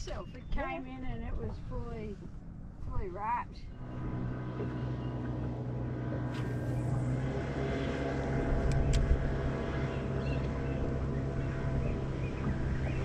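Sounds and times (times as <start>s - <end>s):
boat motor humming: 0.0s - 13.0s
sharp clicks: 8.6s - 9.2s.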